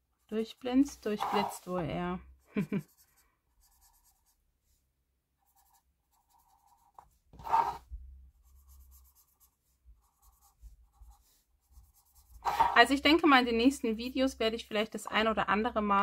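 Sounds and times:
marker scratching on cardboard: 0.2 - 1.8, 2.8 - 4.4, 5.4 - 13.1.

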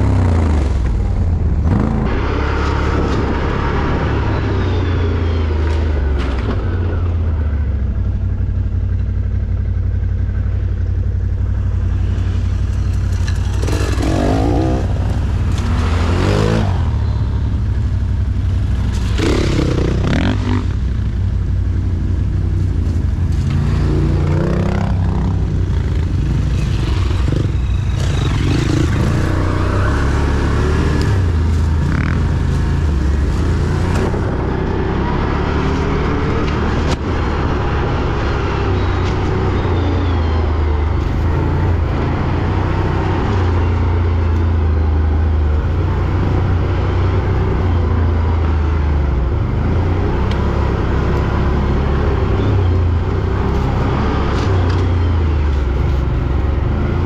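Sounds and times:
quad bike engine revving: 12.1 - 17.3, 18.9 - 21.0, 23.2 - 44.8.

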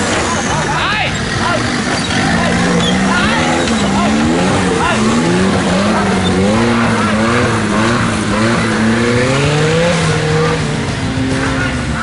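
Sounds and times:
buggy engine revving: 0.0 - 12.0.

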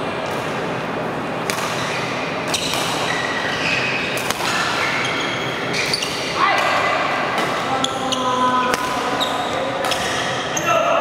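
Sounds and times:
racket hitting shuttlecock: 1.4 - 3.4, 4.1 - 4.9, 5.8 - 7.8, 8.7 - 10.3.

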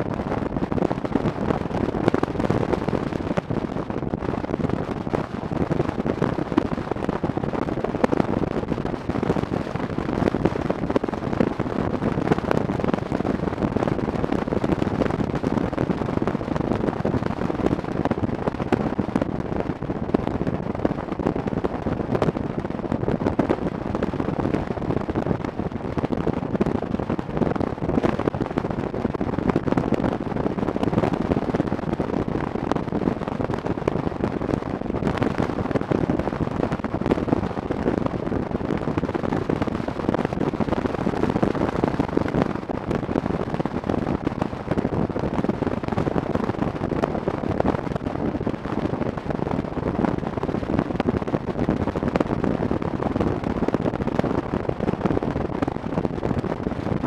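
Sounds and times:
wind buffeting on microphone: 0.0 - 57.0.

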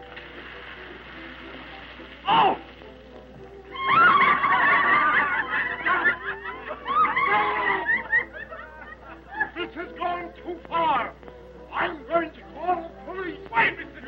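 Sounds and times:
high-pitched shrieks of laughter: 3.7 - 9.6
group of people laughing: 3.8 - 10.0.

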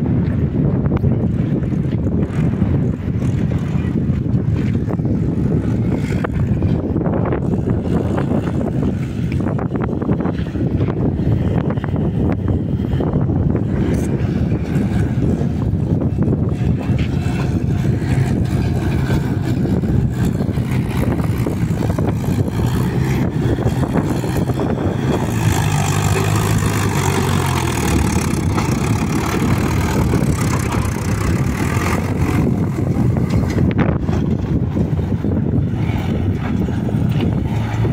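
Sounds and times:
diesel tractor engine under load: 0.0 - 37.9.

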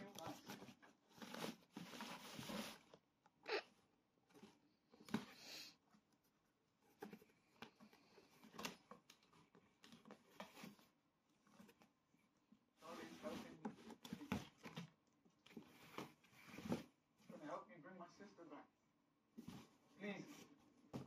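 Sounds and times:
kittens scratching cardboard box: 0.0 - 3.0, 4.2 - 12.0, 12.7 - 17.4.

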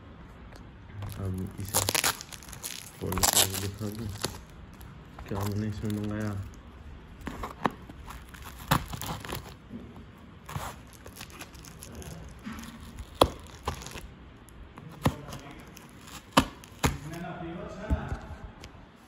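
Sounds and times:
tape and plastic tearing: 1.0 - 6.6, 7.2 - 9.6, 10.4 - 14.1, 14.8 - 17.2.

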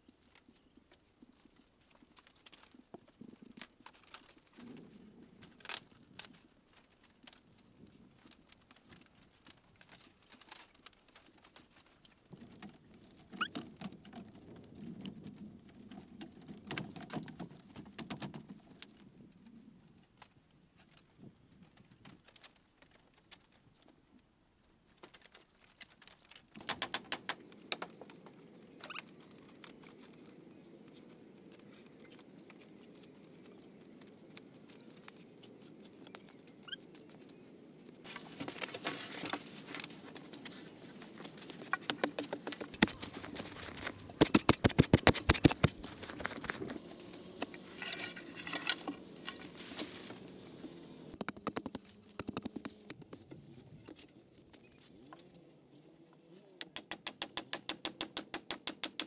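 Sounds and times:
bamboo panels tapping and scraping: 8.2 - 19.0, 24.9 - 55.3, 56.6 - 59.0
sharp clicks: 26.6 - 28.2, 41.7 - 46.8.

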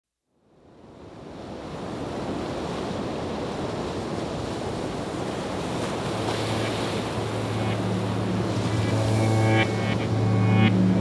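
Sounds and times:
waterfall rushing: 5.9 - 11.0
low steady hum: 6.2 - 11.0.

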